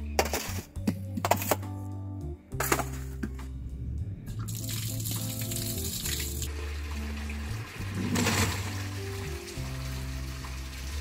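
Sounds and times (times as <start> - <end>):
background music: 0.0 - 11.0
tap water pouring into basin: 4.4 - 11.0.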